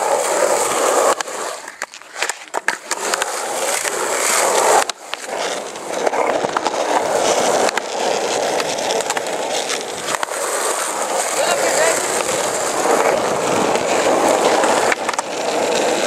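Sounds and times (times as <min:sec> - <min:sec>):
skateboard wheels rolling on asphalt: 0:00.0 - 0:16.0
skateboard knocks: 0:01.0 - 0:16.0.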